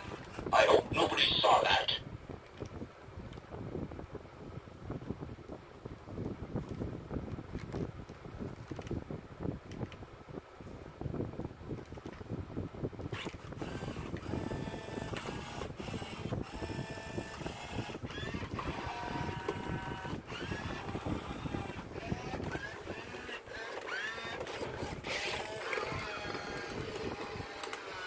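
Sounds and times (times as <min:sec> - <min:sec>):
toy robot motors whirring: 0:13.1 - 0:28.0.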